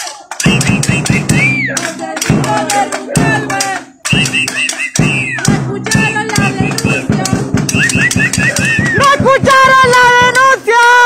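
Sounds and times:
drums beating fast rhythm: 0:00.0 - 0:11.0
loud held pitched tone: 0:00.4 - 0:01.9, 0:04.0 - 0:09.2.

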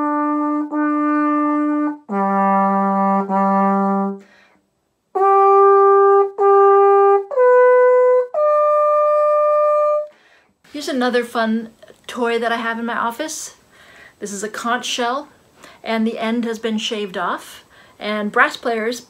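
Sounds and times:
post horn call: 0:00.0 - 0:04.3, 0:05.2 - 0:10.1.

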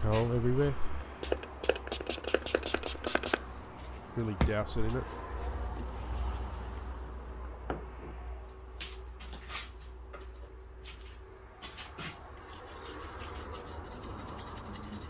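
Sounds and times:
short hissing spray squirts: 0:01.2 - 0:03.4.

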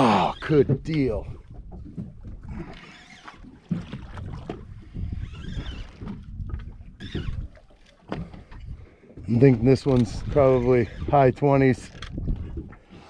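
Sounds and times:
water noise around boat: 0:00.0 - 0:13.0
wind buffeting microphone: 0:03.7 - 0:13.0.

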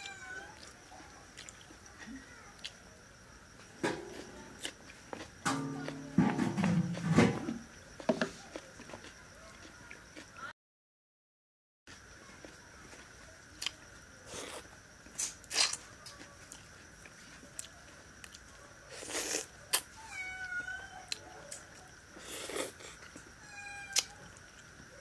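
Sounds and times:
cat meowing faintly: 0:00.0 - 0:00.8, 0:19.9 - 0:21.5, 0:23.4 - 0:24.4
wet chewing and smacking: 0:00.6 - 0:01.9.

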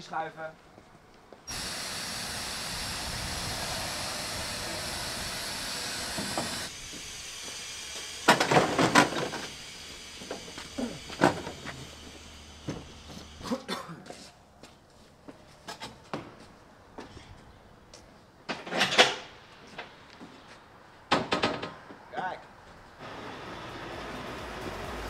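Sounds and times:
compressed air hissing: 0:01.5 - 0:08.2.

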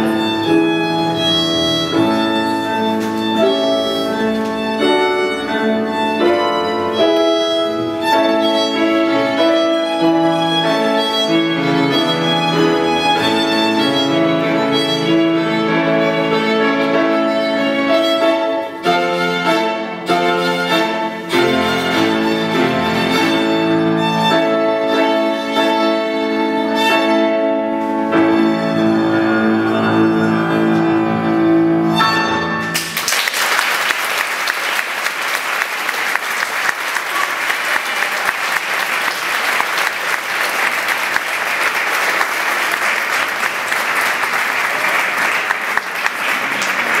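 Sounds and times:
violin: 0:00.0 - 0:32.7
grand piano: 0:00.0 - 0:47.0
audience applauding: 0:32.7 - 0:47.0.

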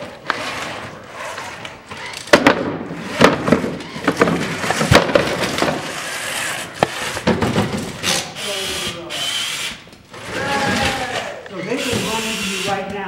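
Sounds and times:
wooden boards knocking and clattering: 0:02.3 - 0:06.1, 0:06.8 - 0:08.0.

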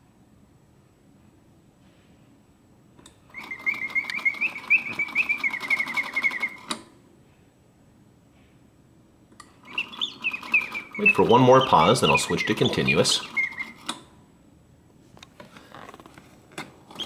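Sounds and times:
clockwork whirr: 0:03.3 - 0:06.8, 0:09.6 - 0:14.0
mechanical bird song warbling: 0:03.3 - 0:06.8, 0:09.6 - 0:14.0.

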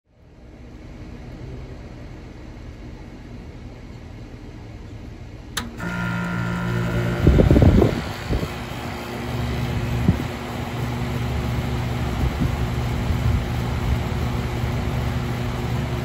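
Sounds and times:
compressor and fan humming: 0:00.1 - 0:16.0
air conditioner switch click: 0:05.6 - 0:08.5.

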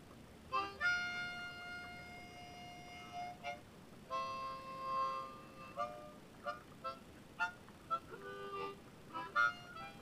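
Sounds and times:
harmonica playing: 0:00.5 - 0:10.0.

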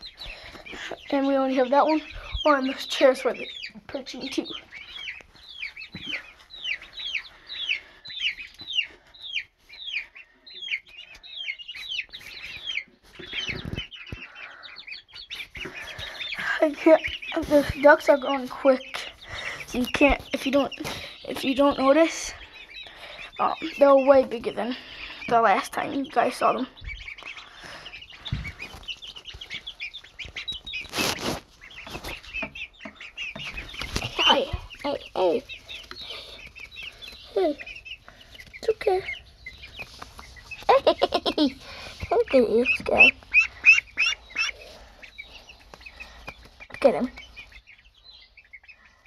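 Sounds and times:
baby chicks peeping: 0:00.0 - 0:49.0
shavings rustling: 0:27.2 - 0:32.4.

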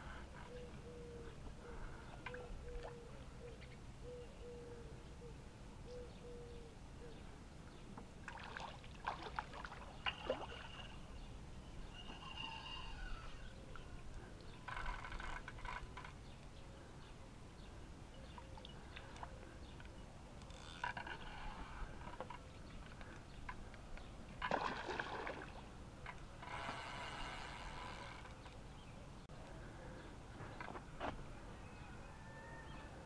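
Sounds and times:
water sloshing and splashing: 0:08.2 - 0:11.0, 0:24.4 - 0:25.7.

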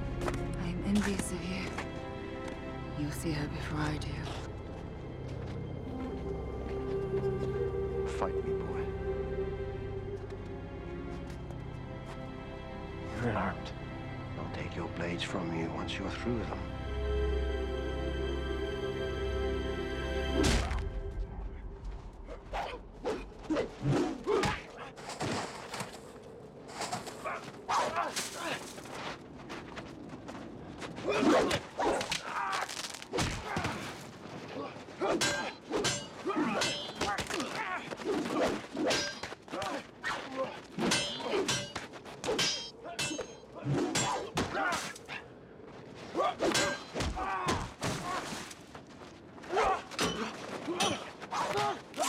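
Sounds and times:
sword blades clashing: 0:35.0 - 0:37.6, 0:38.3 - 0:39.7, 0:40.8 - 0:45.0, 0:46.4 - 0:47.0.

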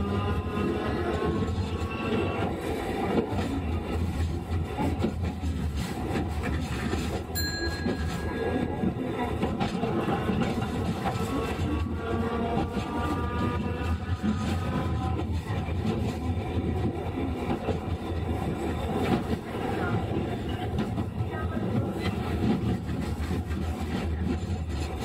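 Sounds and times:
streetcar motors and wheels rumbling: 0:00.0 - 0:25.0
thin high tone: 0:07.4 - 0:08.9.

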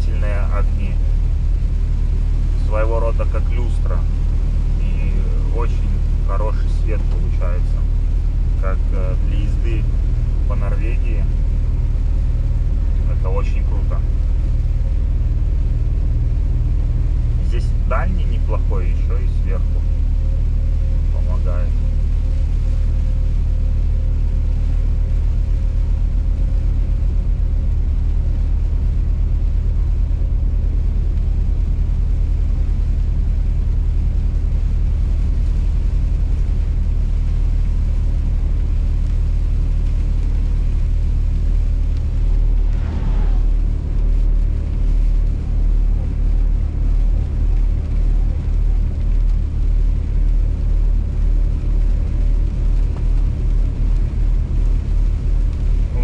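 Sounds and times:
truck diesel engine rumble: 0:00.0 - 0:56.0
short falling whine: 0:37.3 - 0:47.5.

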